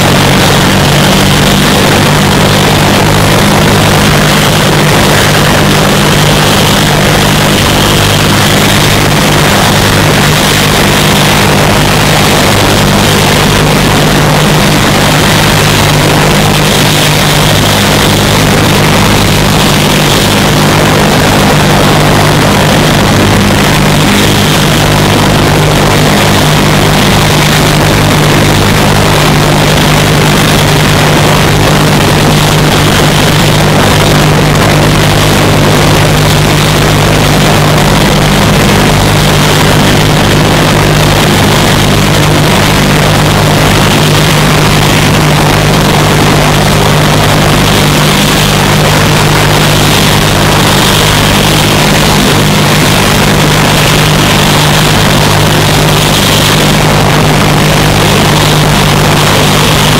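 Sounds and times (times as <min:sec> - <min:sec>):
helicopter engine drone: 0:00.0 - 0:59.9.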